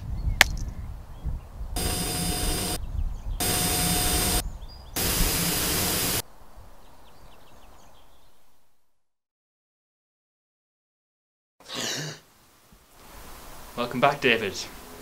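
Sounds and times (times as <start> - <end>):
steady whine: 1.8 - 2.8, 3.4 - 4.4, 5.0 - 6.2
tv static hissing: 1.8 - 2.8, 3.4 - 4.4, 5.0 - 6.2.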